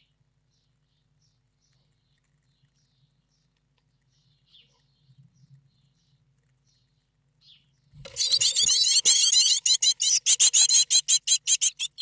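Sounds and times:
nestlings chirping: 0.0s - 12.0s
chicks begging loudly: 8.1s - 12.0s.

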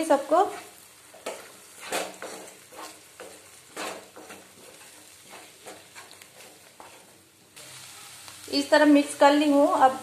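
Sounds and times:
wooden spatula scraping a pan: 0.0s - 7.6s
frying sizzle: 0.0s - 10.0s.

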